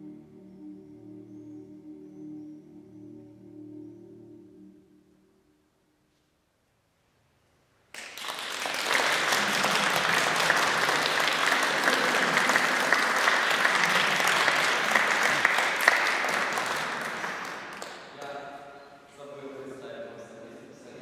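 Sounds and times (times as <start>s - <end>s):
audience applauding: 7.9s - 18.4s.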